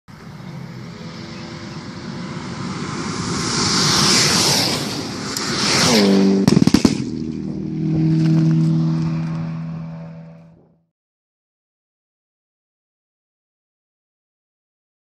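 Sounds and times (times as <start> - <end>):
car passing at speed: 0.1 - 10.6
sharp cracks: 4.2 - 7.4.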